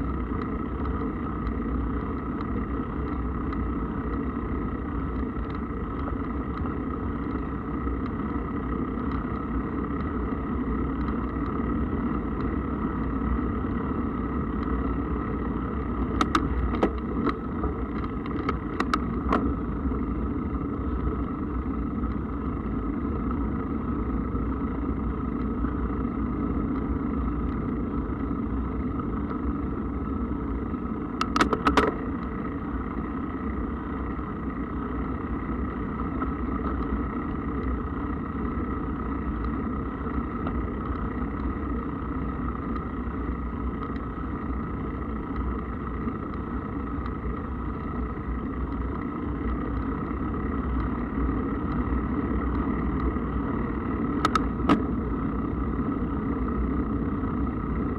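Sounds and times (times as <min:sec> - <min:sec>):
mountain bike rumbling: 0:00.0 - 0:57.9
rattle of clicks: 0:15.7 - 0:19.6, 0:31.2 - 0:32.4, 0:54.1 - 0:54.9.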